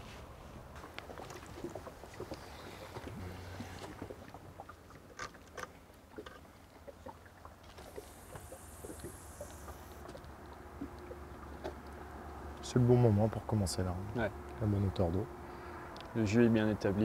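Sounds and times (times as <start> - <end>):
water lapping against hull: 0.0 - 17.0
light splashes: 0.7 - 16.1.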